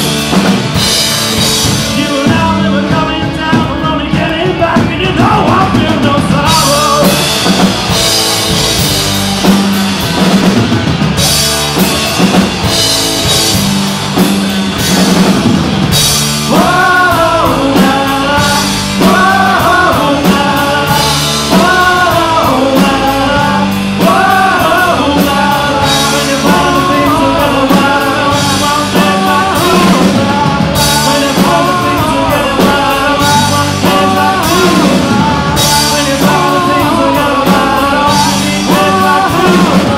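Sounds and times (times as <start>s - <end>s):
bass guitar: 0.0s - 39.9s
drums: 0.0s - 39.9s
electric guitars: 0.0s - 39.9s
person singing: 1.4s - 8.6s, 16.2s - 39.9s.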